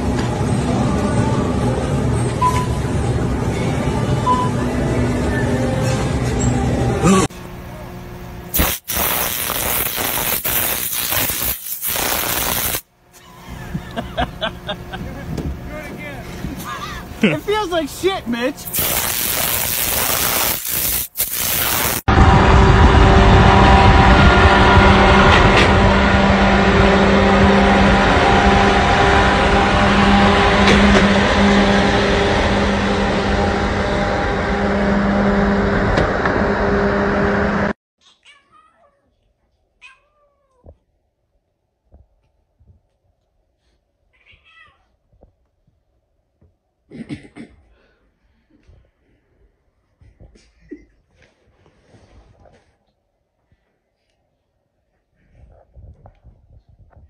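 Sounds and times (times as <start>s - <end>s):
electric arc hissing: 8.5s - 12.9s, 18.7s - 22.1s
wind rush and tyre roar: 22.1s - 37.7s
heavy truck droning hum: 22.1s - 37.8s.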